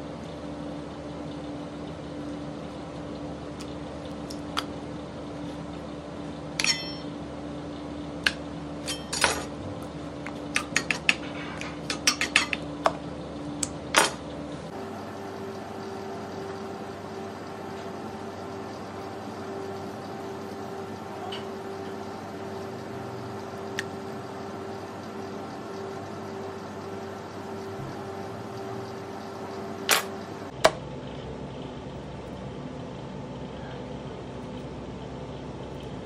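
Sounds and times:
steady hum: 0.0 - 36.0
kitchen utensils clinking: 6.6 - 7.1, 8.8 - 9.5, 10.6 - 12.6.

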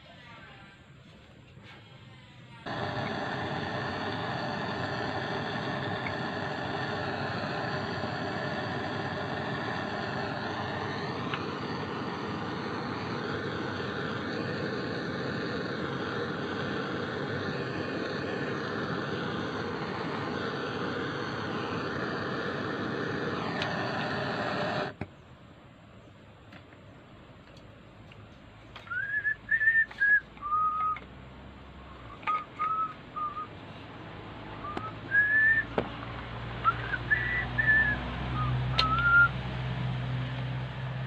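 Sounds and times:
butane torch roaring hiss: 2.6 - 25.0, 32.0 - 41.0.

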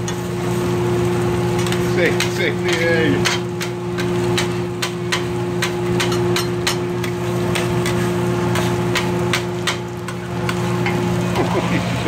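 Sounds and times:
steady machine hum: 0.0 - 12.0
metal spatula scraping griddle: 5.6 - 9.2.

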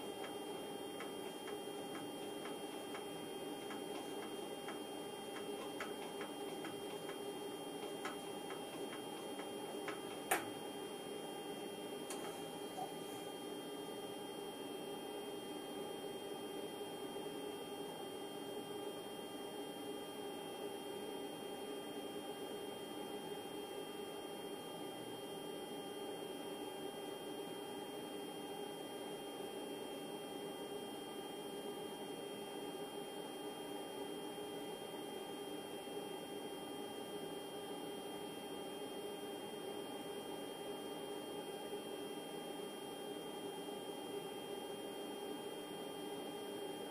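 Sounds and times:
electrical hum: 0.0 - 18.3
steady electrical hum: 0.0 - 46.9.

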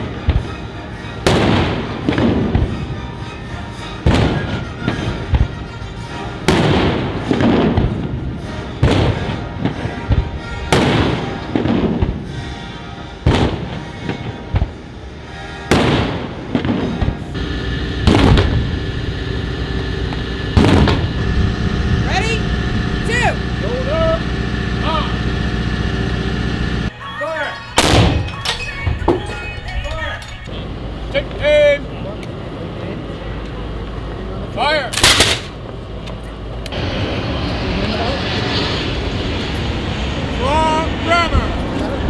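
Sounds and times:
cannons firing with echoing rumble: 1.2 - 2.8, 4.1 - 5.6, 6.4 - 12.4, 13.2 - 14.8, 15.7 - 26.9, 35.0 - 35.6.

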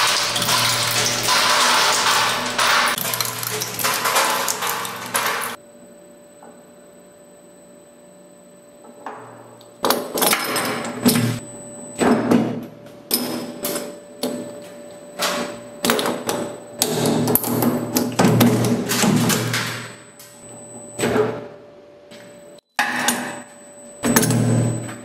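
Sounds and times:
shredder grinding and crunching: 0.0 - 5.6.

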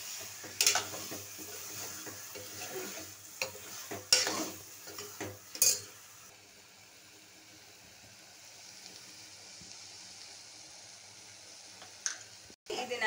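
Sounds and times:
chicken sizzling in oil: 0.0 - 13.0
ladle scraping and knocking pot: 0.4 - 5.9.

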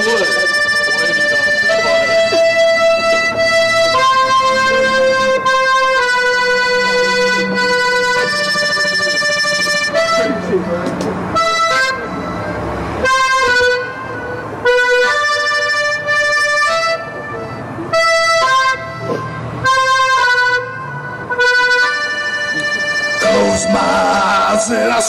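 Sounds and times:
accordion playing held chords: 0.0 - 25.0.

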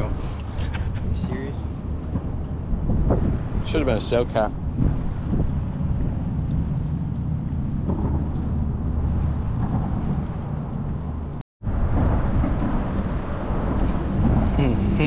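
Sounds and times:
wind buffeting the microphone: 0.0 - 15.0.

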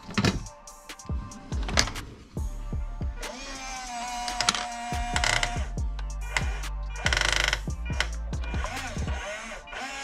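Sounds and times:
background music with steady beat: 0.0 - 10.0
toy crane motor whining: 3.2 - 10.0.

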